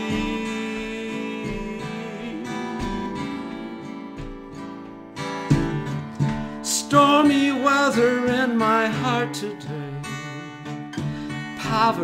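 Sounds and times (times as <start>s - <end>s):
acoustic guitar strumming: 0.0s - 12.0s.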